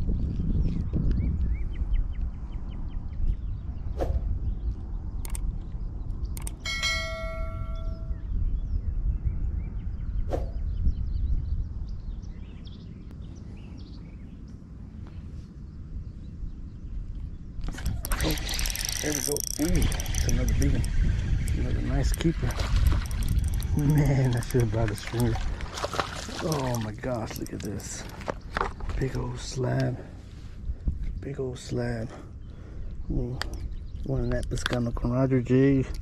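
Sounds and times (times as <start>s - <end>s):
wind on microphone: 0.0s - 36.0s
sharp clicks: 5.2s - 5.6s, 6.3s - 6.6s, 17.6s - 28.7s
bell-like ding: 6.6s - 8.2s.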